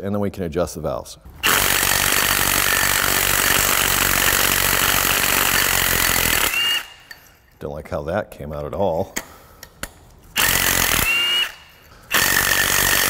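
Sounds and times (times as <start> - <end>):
power tool running: 1.4 - 7.2, 10.4 - 13.0.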